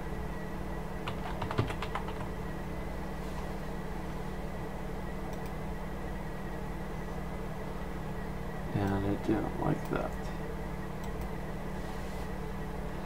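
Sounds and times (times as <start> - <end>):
low electrical hum: 0.0 - 13.0
keyboard typing: 1.0 - 2.3.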